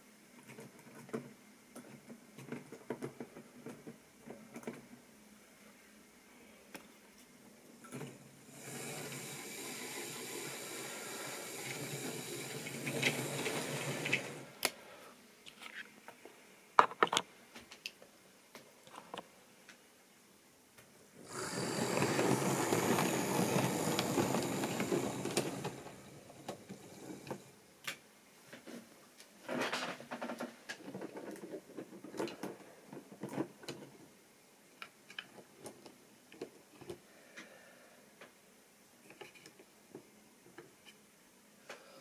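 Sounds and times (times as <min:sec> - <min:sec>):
model train running on track: 0:08.6 - 0:14.4, 0:21.3 - 0:27.4
wheels and couplings clicking: 0:21.4 - 0:27.4.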